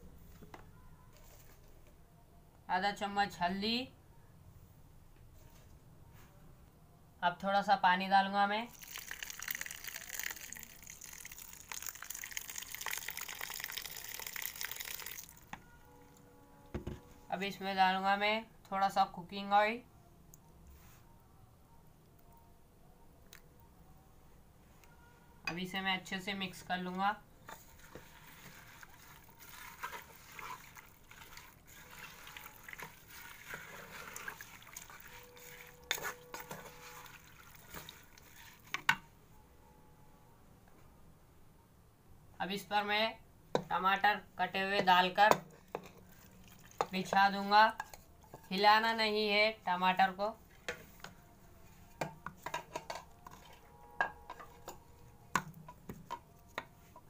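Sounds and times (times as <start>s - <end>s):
water pouring into metal pot: 8.7s - 15.5s, 28.2s - 38.7s, 46.0s - 47.0s, 53.2s - 53.6s
spatula stirring wet onions: 26.0s - 39.0s, 44.5s - 57.0s.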